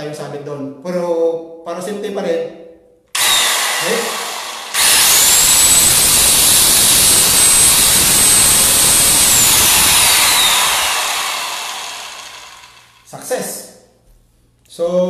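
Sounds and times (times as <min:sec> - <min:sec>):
circular saw motor whining: 0:03.2 - 0:13.1.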